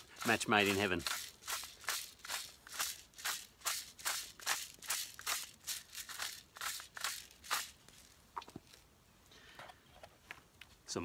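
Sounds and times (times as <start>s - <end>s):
pepper grinder grinding: 0.0s - 8.8s.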